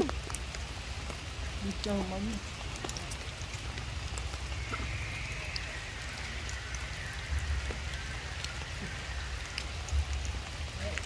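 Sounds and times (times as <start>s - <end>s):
drips ticking: 0.0s - 11.0s
light rain hiss: 0.0s - 11.0s
low rumble: 3.5s - 10.8s.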